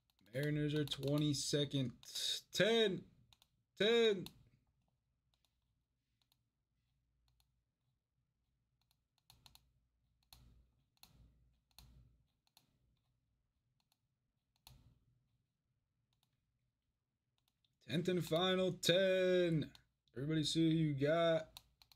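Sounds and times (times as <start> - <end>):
computer mouse clicks: 0.0 - 2.2, 3.3 - 3.6, 5.3 - 6.5, 7.2 - 7.6, 8.8 - 13.1, 13.8 - 14.9, 16.1 - 16.4, 21.5 - 21.9.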